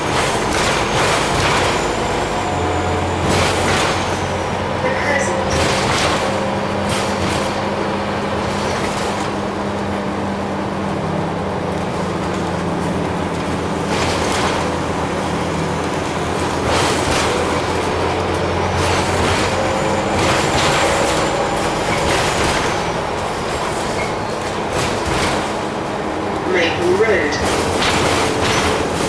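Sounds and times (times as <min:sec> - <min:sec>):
bus diesel engine hum: 0:00.0 - 0:29.0
road noise: 0:00.0 - 0:29.0
sharp knocks from bus body: 0:23.6 - 0:25.6, 0:27.4 - 0:29.0.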